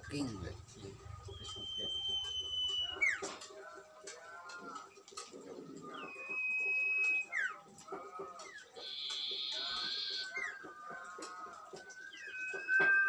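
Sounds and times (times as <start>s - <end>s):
high whistling birdsong: 0.0s - 3.5s, 4.8s - 13.0s
bird twittering: 0.1s - 3.4s, 5.6s - 7.6s, 8.5s - 10.8s, 11.9s - 13.0s.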